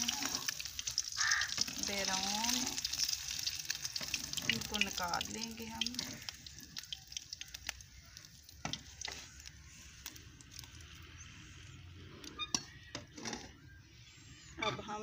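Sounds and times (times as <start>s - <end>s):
hot oil sizzling in a metal pan: 0.0s - 10.2s.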